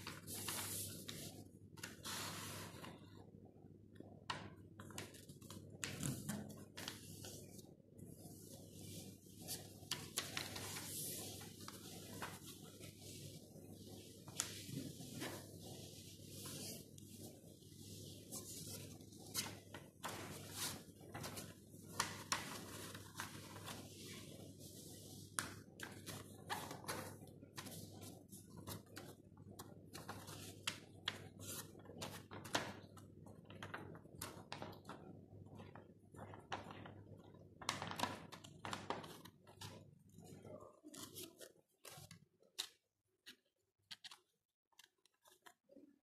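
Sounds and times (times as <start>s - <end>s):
paper crinkling and rustling: 0.0s - 3.0s, 8.8s - 13.1s, 35.6s - 42.8s.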